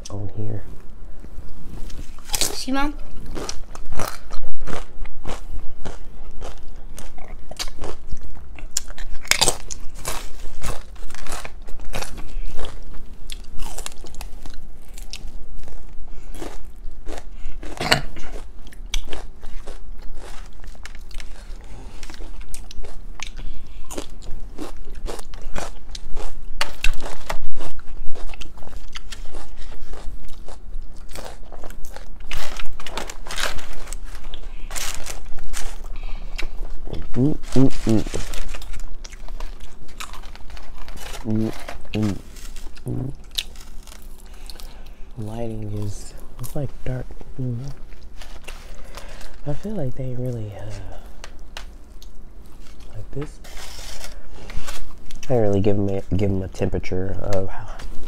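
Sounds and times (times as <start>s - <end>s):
chewing: 1.5s - 45.0s
crunching chips: 1.9s - 56.4s.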